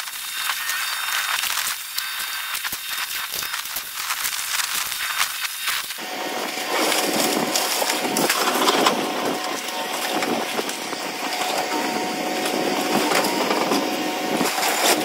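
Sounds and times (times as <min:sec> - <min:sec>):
excavator engine running: 0:06.0 - 0:15.0
wood and metal crunching: 0:06.4 - 0:15.0.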